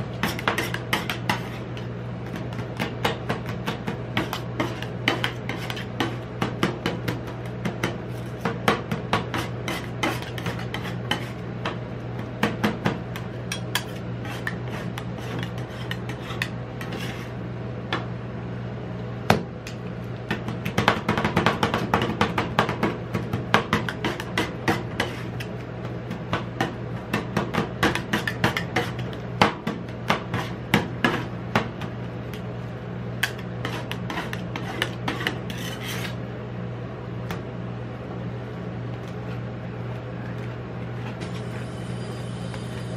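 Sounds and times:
metal spatulas scraping metal: 9.3s - 11.4s, 13.5s - 17.4s, 33.6s - 36.2s.

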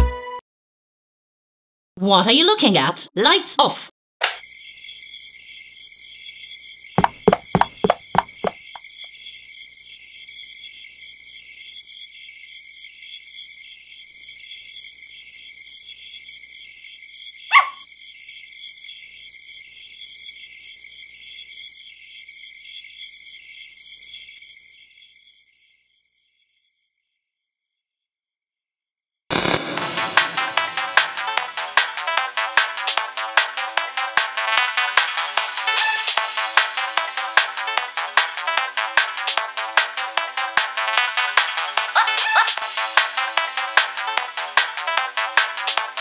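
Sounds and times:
crickets chirping: 4.3s - 27.7s
quick run of clicks: 7.0s - 8.9s.

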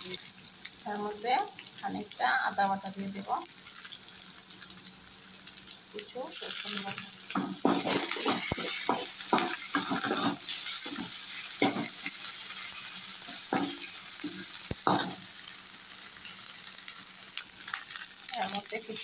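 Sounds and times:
food sizzling in hot oil: 0.0s - 19.0s
metal spoon scraping a pan: 6.6s - 15.2s.

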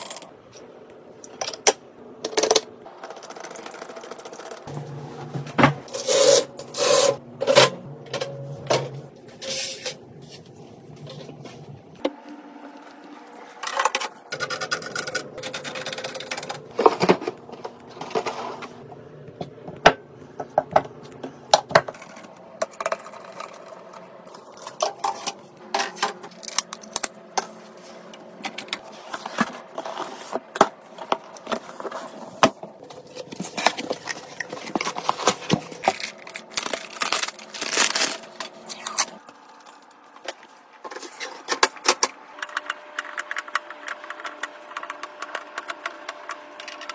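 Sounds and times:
scraping and rustling: 27.5s - 41.6s.

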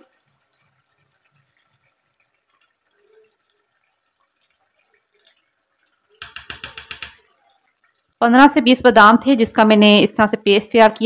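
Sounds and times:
metal spoon scraping a bowl: 6.2s - 7.2s.

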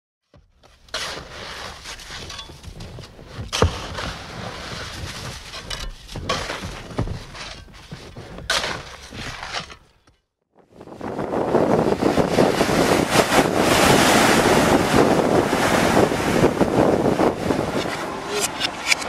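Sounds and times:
crackling rustling noise texture: 0.5s - 10.0s
sharp knocks: 1.8s - 10.2s.

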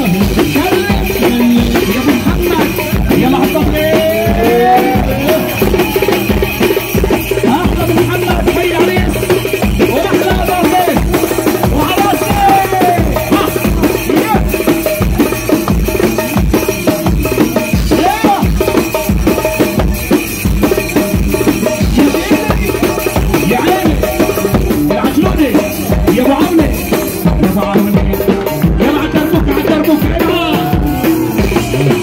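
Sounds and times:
goblet drum played by hand: 0.0s - 32.0s
loud live dance music: 0.0s - 32.0s
wavering melody: 1.1s - 18.4s.

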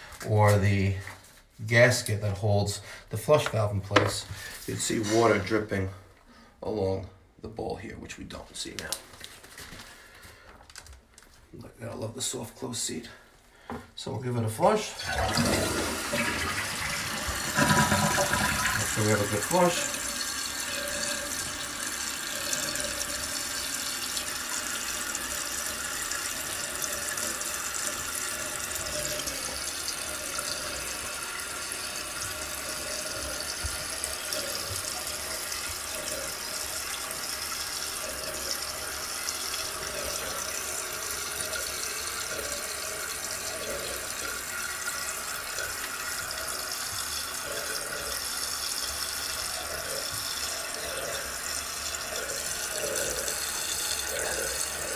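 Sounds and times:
toilet tank refilling: 14.6s - 54.9s.

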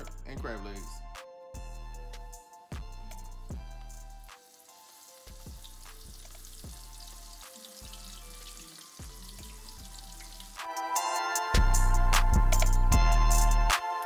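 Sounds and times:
background music with bass: 0.0s - 4.4s, 5.2s - 14.0s
shrimp sizzling in hot oil: 3.4s - 11.3s.

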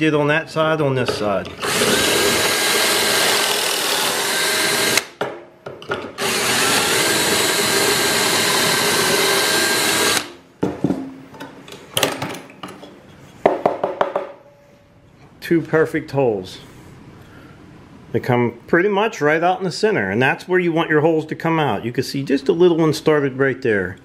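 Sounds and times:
power drill boring into wood: 1.6s - 5.1s, 6.2s - 10.3s.

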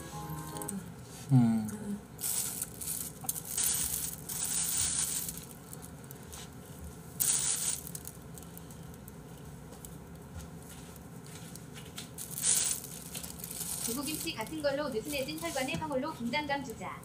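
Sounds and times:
plastic bag crinkling: 2.2s - 6.5s, 12.1s - 16.2s.

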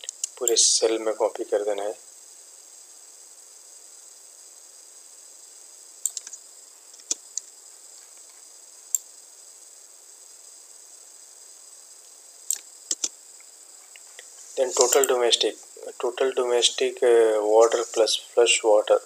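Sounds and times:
steady high hiss: 0.0s - 19.0s
mouse and keyboard clicks: 6.1s - 6.4s, 12.5s - 13.1s.

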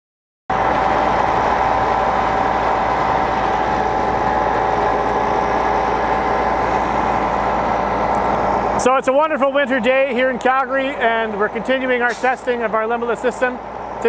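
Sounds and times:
constant whine: 0.5s - 14.0s
engine and pump drone: 0.5s - 14.0s.

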